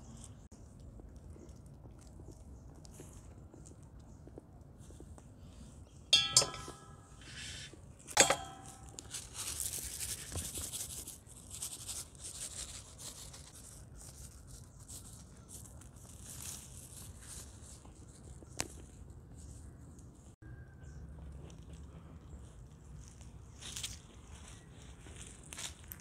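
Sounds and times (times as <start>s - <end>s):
ringing clink of glass: 6.2s - 7.1s
seeds rustling from a jar: 6.9s - 20.1s, 21.5s - 26.0s.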